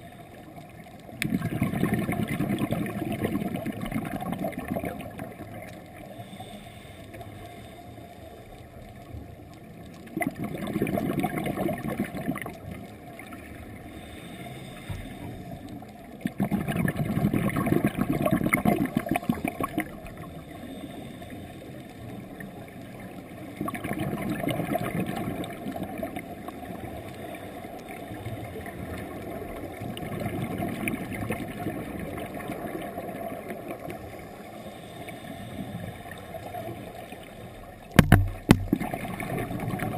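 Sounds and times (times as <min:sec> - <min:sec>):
air bubbling underwater: 0:01.2 - 0:05.0, 0:10.2 - 0:12.5, 0:16.2 - 0:20.0, 0:38.0 - 0:39.9.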